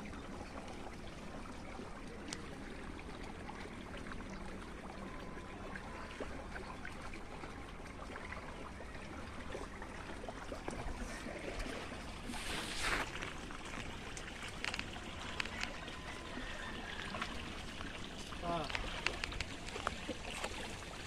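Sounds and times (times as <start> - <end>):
water rushing in ditch: 0.0 - 21.0
small ticks: 13.2 - 15.8, 18.6 - 20.5.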